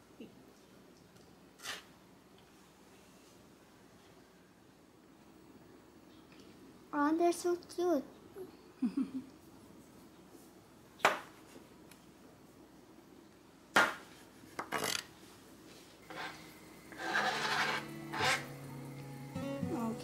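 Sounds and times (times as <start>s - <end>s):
frying pan stirred with scraping: 1.6s - 2.0s, 16.0s - 18.7s.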